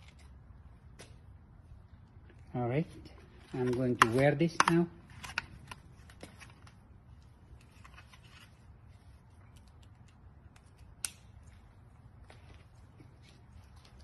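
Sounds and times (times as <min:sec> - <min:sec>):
plastic helmet clicks and rustles: 0:03.1 - 0:14.0.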